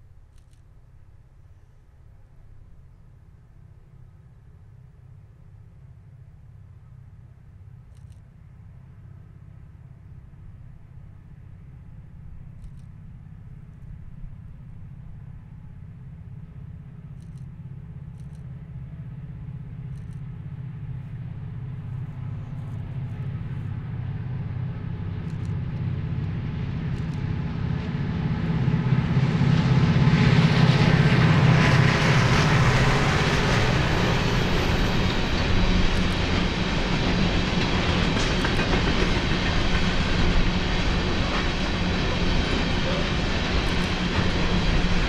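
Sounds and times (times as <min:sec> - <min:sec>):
diesel locomotive engine hum: 0:00.0 - 0:45.0
passing train rushing noise: 0:13.2 - 0:45.0.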